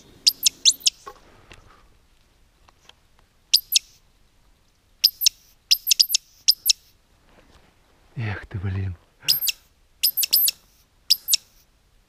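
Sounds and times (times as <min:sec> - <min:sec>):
woodcock high squeaking call: 0:00.0 - 0:01.1, 0:03.5 - 0:04.0, 0:05.0 - 0:06.9, 0:09.3 - 0:11.6.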